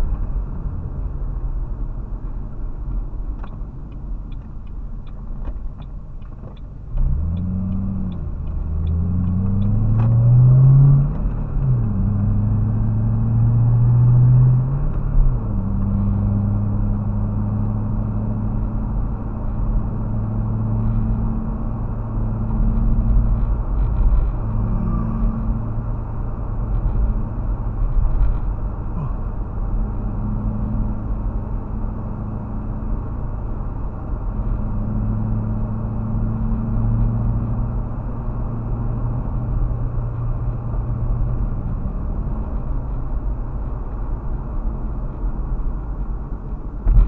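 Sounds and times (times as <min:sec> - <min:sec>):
car engine accelerating: 0:00.0 - 0:47.0
tyre and road noise: 0:00.0 - 0:47.0
turn signal ticking: 0:02.2 - 0:12.0.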